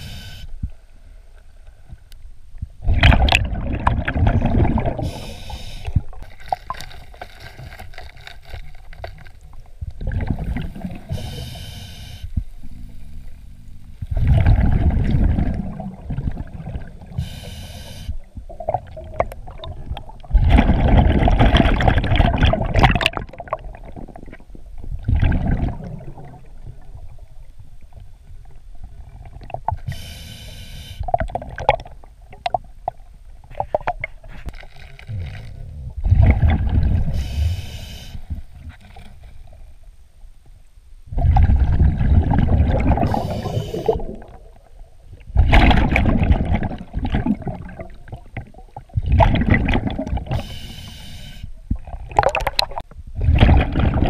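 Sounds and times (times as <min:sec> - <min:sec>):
hissing regulator inhales: 0:00.0 - 0:00.5, 0:05.0 - 0:06.0, 0:11.1 - 0:12.3, 0:17.2 - 0:18.2, 0:29.9 - 0:31.0, 0:37.2 - 0:38.3, 0:43.1 - 0:44.0, 0:50.3 - 0:51.5
bubbling exhales underwater: 0:02.8 - 0:06.2, 0:14.1 - 0:17.2, 0:25.0 - 0:26.9, 0:35.1 - 0:37.6, 0:41.1 - 0:44.7, 0:51.8 - 0:54.0.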